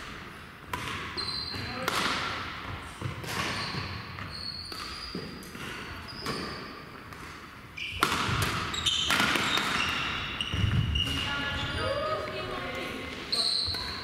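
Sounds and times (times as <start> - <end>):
rackets striking shuttlecock: 0.7 - 11.3
shoes squeaking on court floor: 0.9 - 1.9, 3.0 - 14.0.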